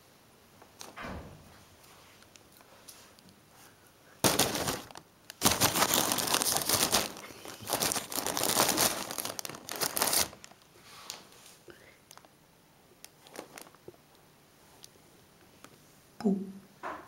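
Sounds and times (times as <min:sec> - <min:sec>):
plastic film crinkling: 0:04.2 - 0:11.2, 0:12.1 - 0:12.4, 0:13.0 - 0:14.0.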